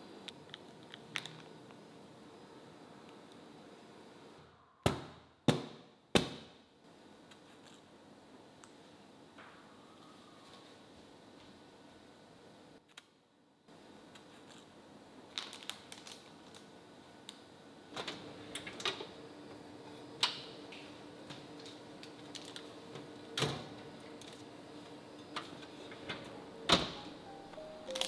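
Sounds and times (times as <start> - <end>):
oven fan humming: 16.2 - 28.0.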